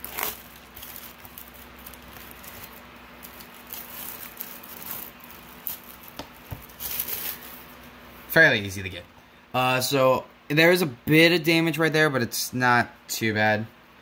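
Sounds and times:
cellophane crinkling: 0.0s - 7.7s.

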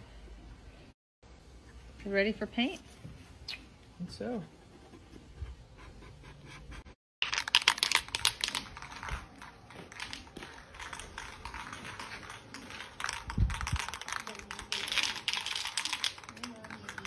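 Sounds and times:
spray can rattling when shaken: 7.2s - 17.0s.

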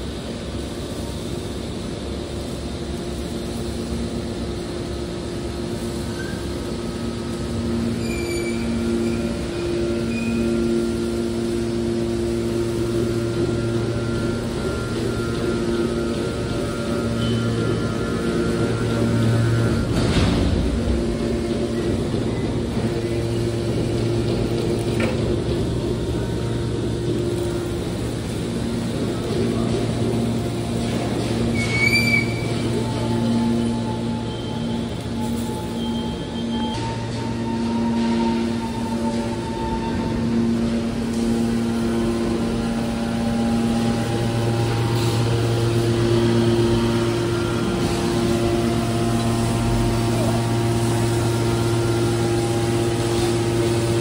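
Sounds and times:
hydraulic power unit humming: 0.0s - 54.0s.

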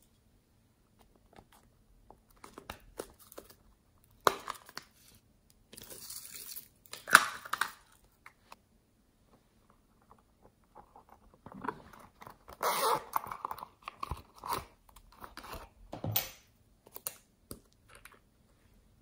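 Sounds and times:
zipper opening: 12.5s - 13.3s.

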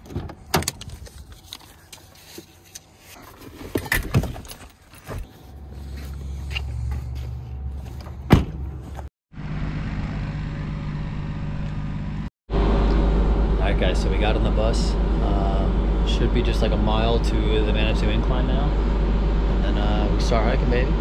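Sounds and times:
vehicle engine running: 5.2s - 21.0s.

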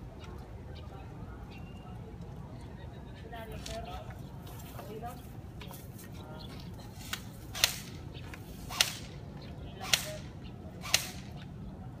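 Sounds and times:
airsoft gun shots: 7.5s - 8.0s, 8.7s - 9.2s, 9.8s - 11.4s.

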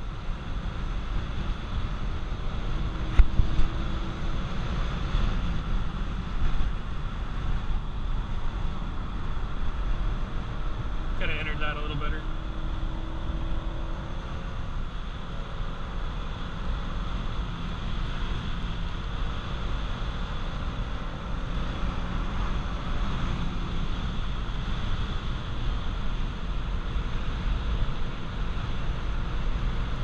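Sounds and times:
wind noise: 0.0s - 11.1s
car engine running: 0.0s - 30.0s.

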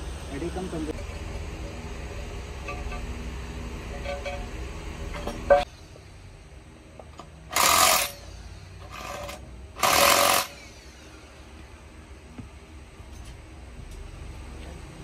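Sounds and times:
power tool bursts: 7.5s - 11.1s.

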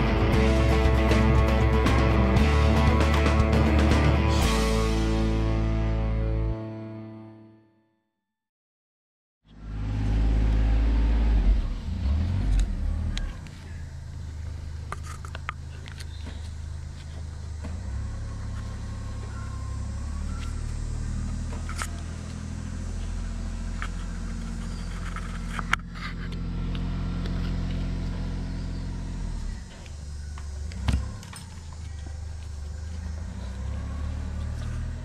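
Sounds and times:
low mechanical hum: 9.5s - 35.0s.

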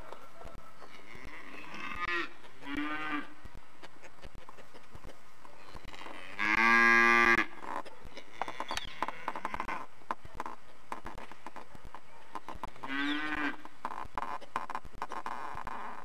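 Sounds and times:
farm animal calls: 0.0s - 16.0s.

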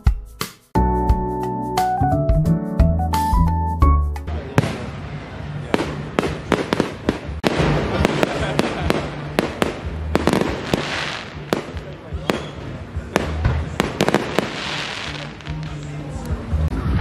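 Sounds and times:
fireworks bangs: 4.4s - 15.7s.

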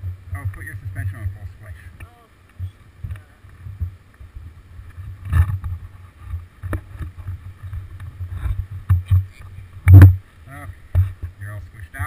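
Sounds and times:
low thumps on bike: 2.6s - 10.2s.

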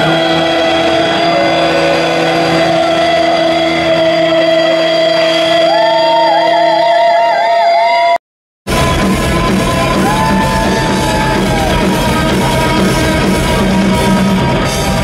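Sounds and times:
distorted electric guitars: 0.0s - 7.3s, 8.7s - 15.0s.

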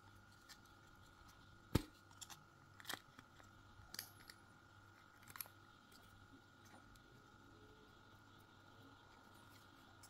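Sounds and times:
faint steady high tone: 5.9s - 10.0s.

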